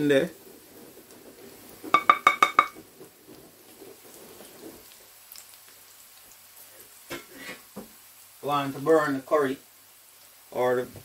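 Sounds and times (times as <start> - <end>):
onions sizzling in oil: 0.0 - 11.0
wooden spoon tapping metal pot: 1.9 - 2.8.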